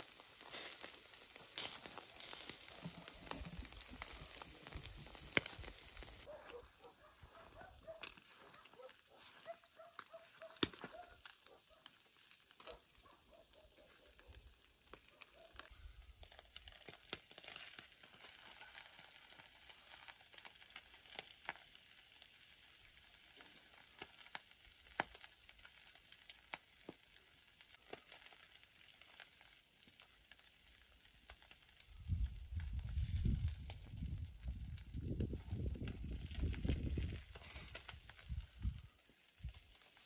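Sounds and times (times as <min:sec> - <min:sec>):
food sizzling in a pan: 0:00.0 - 0:06.3.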